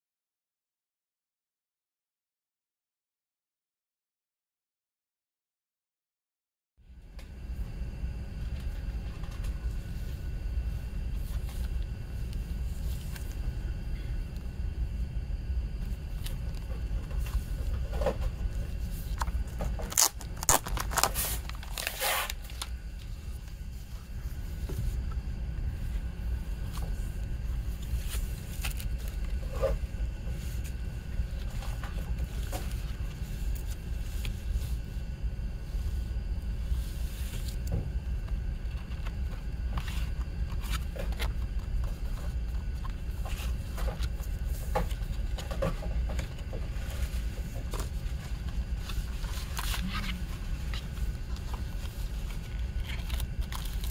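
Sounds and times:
paper rustling: 16.1s - 24.7s, 26.6s - 34.8s, 38.6s - 53.9s.

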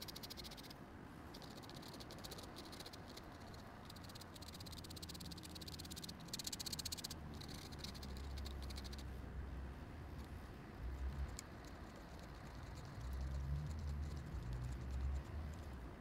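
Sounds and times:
pen nib scratching on paper: 0.0s - 0.7s, 1.4s - 9.0s, 10.9s - 15.8s
pen nib tick on paper: 1.4s - 9.0s.

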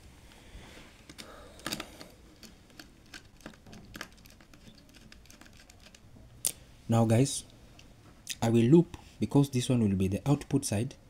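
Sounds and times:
wires rustling: 0.0s - 8.3s.

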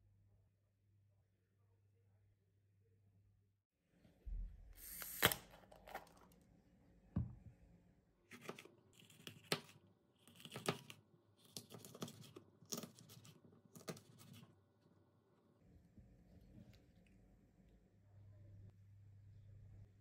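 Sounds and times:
knife knocking on cutting board: 7.2s - 7.4s.

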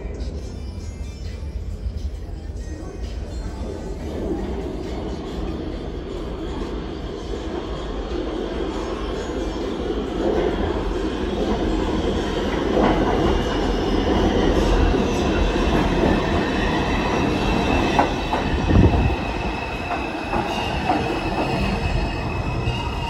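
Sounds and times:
train low rumble: 0.0s - 23.0s
train wheels squealing: 16.0s - 23.0s.

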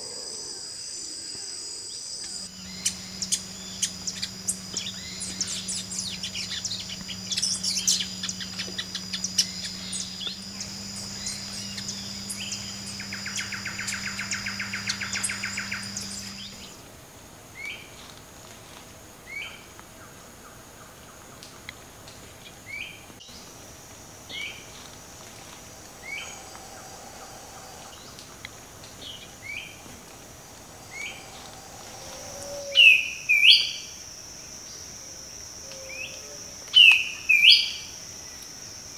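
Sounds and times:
high insect drone: 0.0s - 38.9s
birds chirping: 2.4s - 16.8s, 24.2s - 34.0s.

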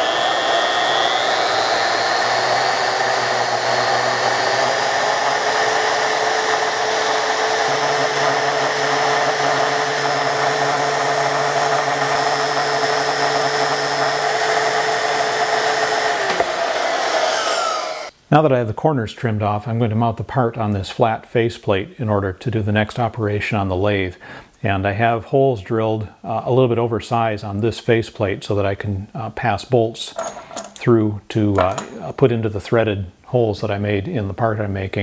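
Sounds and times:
bandsaw cutting steel: 0.0s - 18.1s.

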